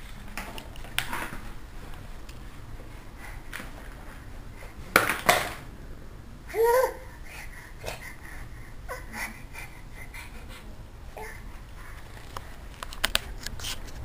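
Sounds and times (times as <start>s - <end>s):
toddler babbling: 6.5s - 7.1s.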